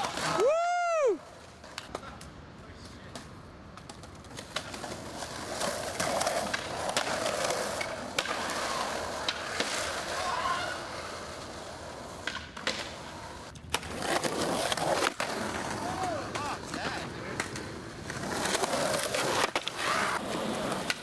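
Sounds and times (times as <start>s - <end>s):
skateboard rolling on asphalt: 0.0s - 2.2s, 2.9s - 21.0s.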